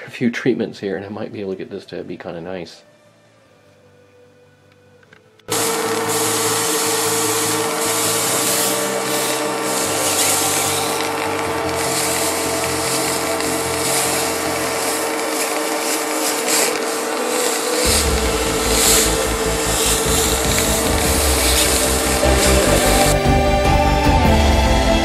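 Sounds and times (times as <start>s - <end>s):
shop vacuum motor whine: 5.2s - 25.0s
suction hiss: 5.5s - 24.3s.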